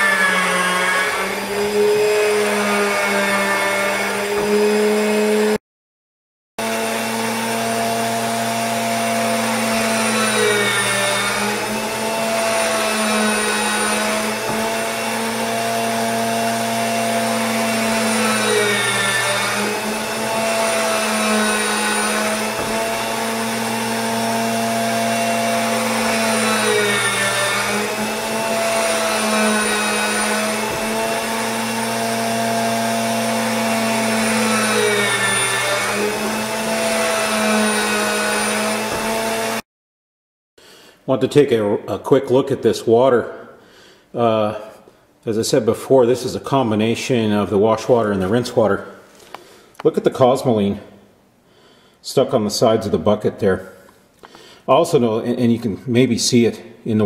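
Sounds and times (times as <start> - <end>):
electric gear motor humming: 6.6 - 39.6.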